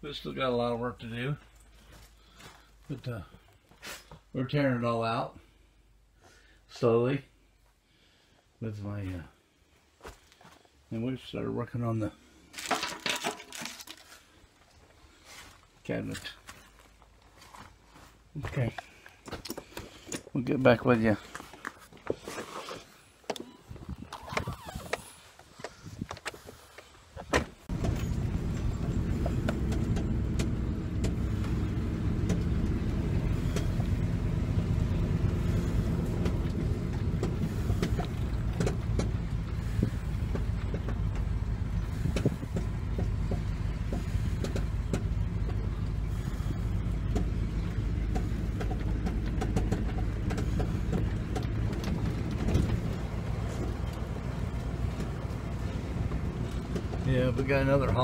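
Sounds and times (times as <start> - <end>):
vehicle engine and road hum: 9.1 - 58.0
rattles and knocks: 12.6 - 14.1, 35.4 - 57.1.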